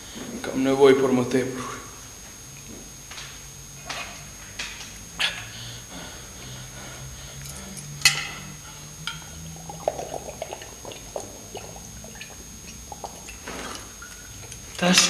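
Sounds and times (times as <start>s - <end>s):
man gulping water: 8.8s - 14.8s.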